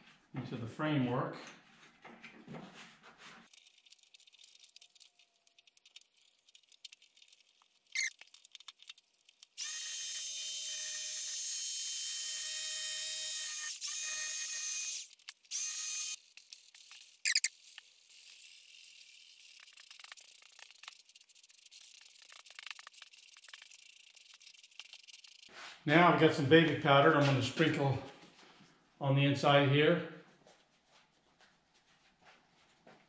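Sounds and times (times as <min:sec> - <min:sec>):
electric carving knife whine: 0:09.6 - 0:19.7.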